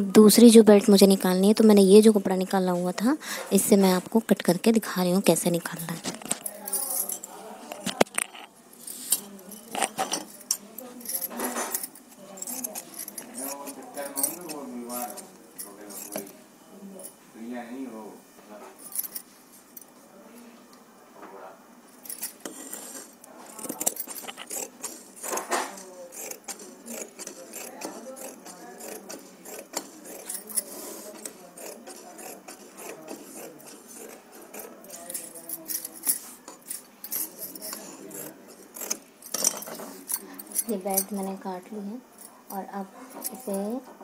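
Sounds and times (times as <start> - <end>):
scissors snipping fabric: 23.5 - 39.7.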